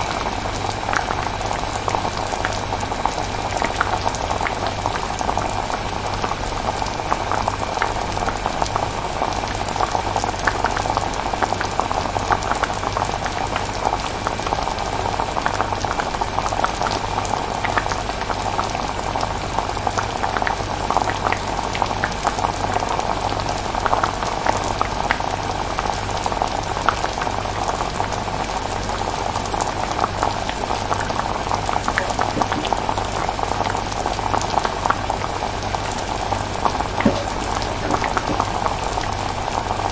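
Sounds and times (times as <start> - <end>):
thick sauce bubbling: 29.2 - 39.9
low steady hum: 31.0 - 39.6.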